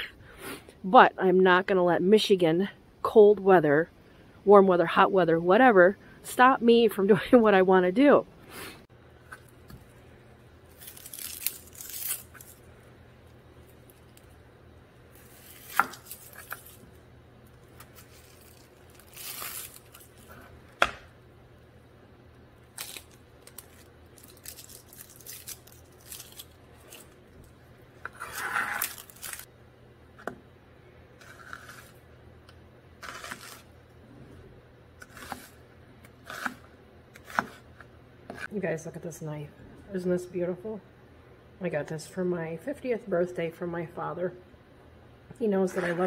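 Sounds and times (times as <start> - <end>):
onion skin crinkling: 9.3 - 14.4, 15.1 - 20.8, 22.6 - 29.5, 33.0 - 33.7.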